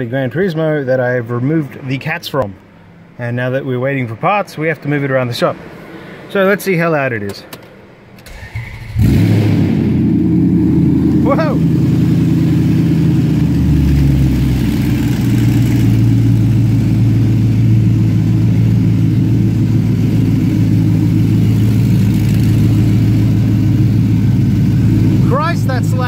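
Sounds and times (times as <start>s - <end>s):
car engine idling loudly: 9.0s - 26.0s.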